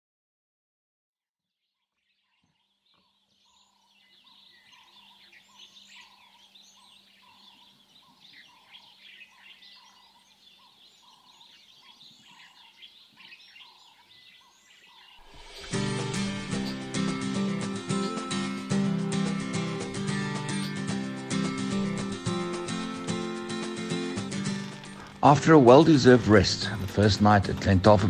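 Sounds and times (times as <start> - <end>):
birds chirping and whistling: 2.2 - 27.4
low repeated bird note: 15.2 - 27.0.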